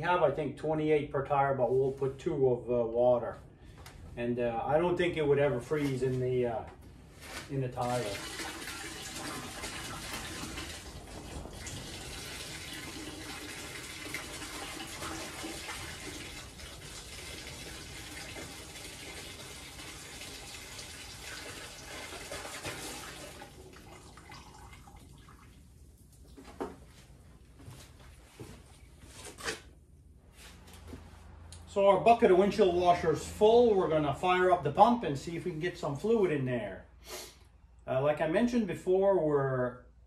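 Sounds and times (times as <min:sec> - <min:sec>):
fluid pouring into plastic bucket: 0:07.8 - 0:26.4.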